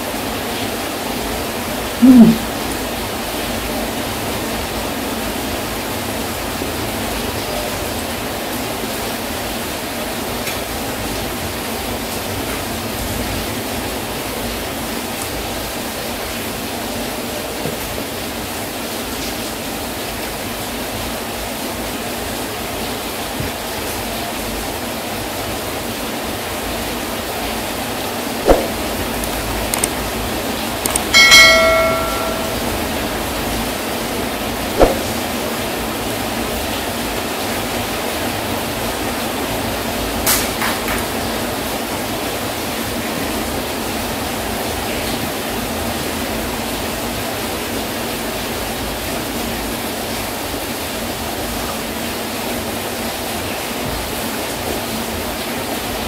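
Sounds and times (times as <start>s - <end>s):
sharp clicks: 28.5s - 30.0s, 30.9s - 31.4s
bell-like chime: 31.1s - 32.8s.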